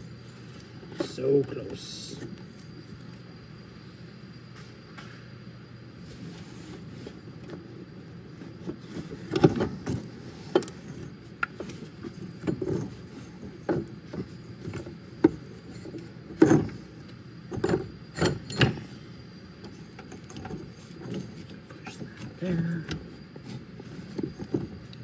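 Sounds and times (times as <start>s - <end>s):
metal clunks and knocks: 17.5s - 18.9s.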